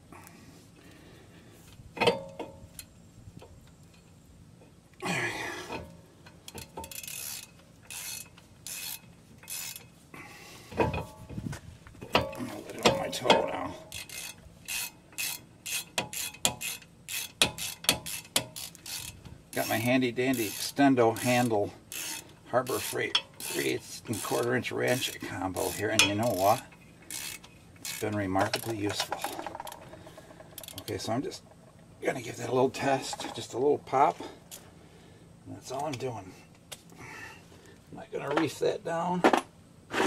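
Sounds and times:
socket ratchet clicking: 6.4s - 9.9s, 13.9s - 22.2s, 24.3s - 31.7s.

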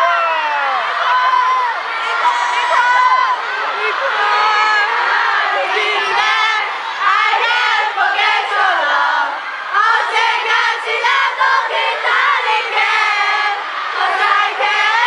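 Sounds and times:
crowd screaming and calling out: 0.0s - 15.0s.

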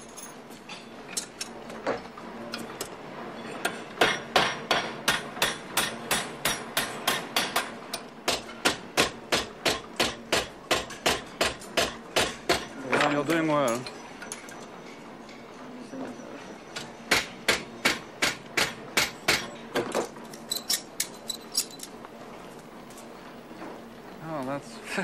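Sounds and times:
metal clinks: 0.0s - 0.4s
hammer striking metal: 3.6s - 12.8s, 17.1s - 19.6s.

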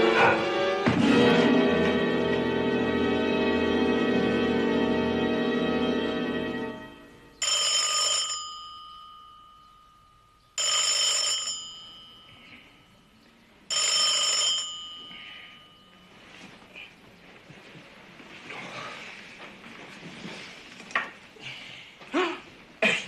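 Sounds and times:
background music: 0.0s - 7.4s
telephone bell ringing: 7.4s - 13.0s, 13.7s - 16.2s.

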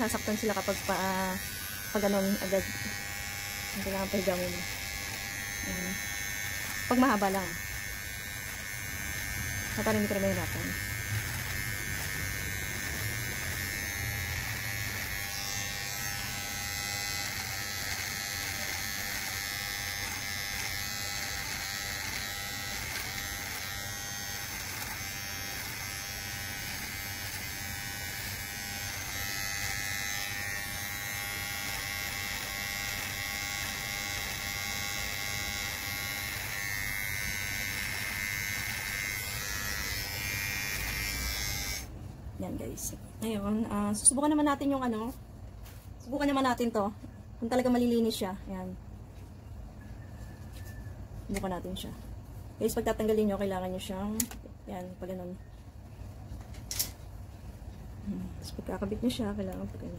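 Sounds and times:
electric trimmer buzzing: 0.0s - 42.0s.

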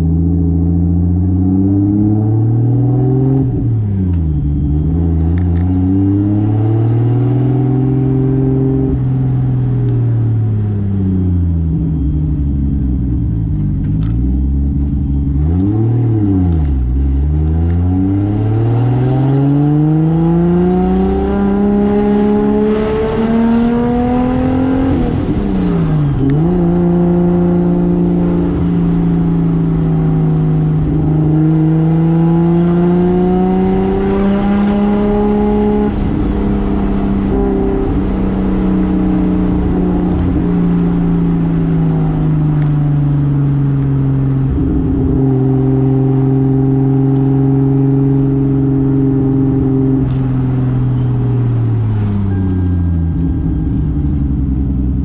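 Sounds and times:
car engine revving: 0.0s - 55.0s
gear change: 11.3s - 55.0s.

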